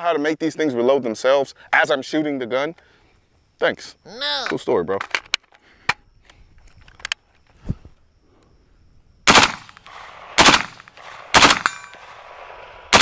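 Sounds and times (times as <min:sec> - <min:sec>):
rifle firing full-auto bursts: 0:09.3 - 0:13.0.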